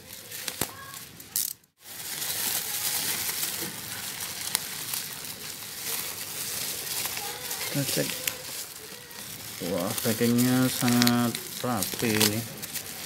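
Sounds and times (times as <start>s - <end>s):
bubble wrap crinkling: 0.0s - 13.0s.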